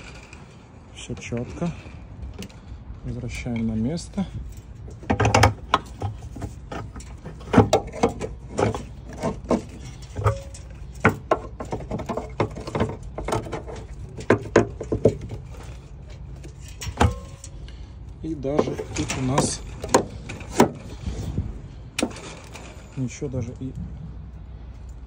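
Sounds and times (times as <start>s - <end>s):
metal couplings clicking and knocking: 3.3s - 17.8s, 18.4s - 20.9s.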